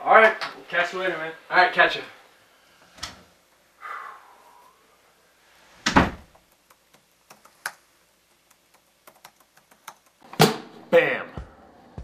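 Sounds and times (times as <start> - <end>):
door closing with deep thud: 5.8 - 6.3
typing on laptop keyboard: 6.4 - 10.2.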